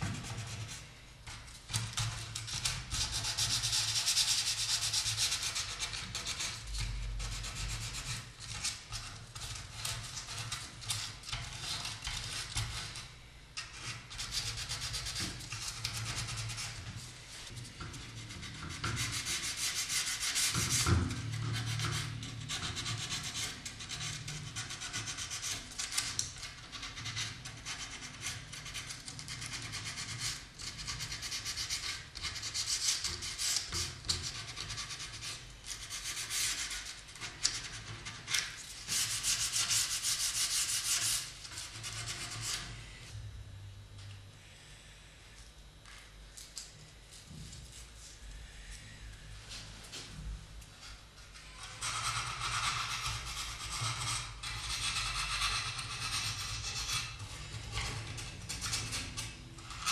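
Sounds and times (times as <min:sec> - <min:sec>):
sandpaper rubbing wood: 0:18.1 - 0:25.6, 0:34.5 - 0:42.6, 0:51.8 - 0:57.2.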